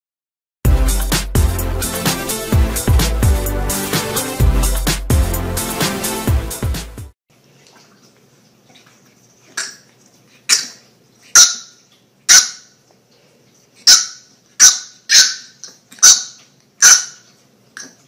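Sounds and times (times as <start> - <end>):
puppy yapping play barks: 13.9 - 17.2.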